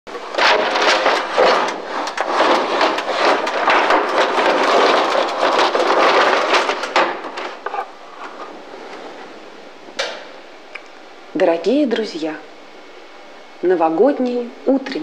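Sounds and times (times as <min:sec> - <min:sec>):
roller shutter slats clattering: 0:00.2 - 0:07.8.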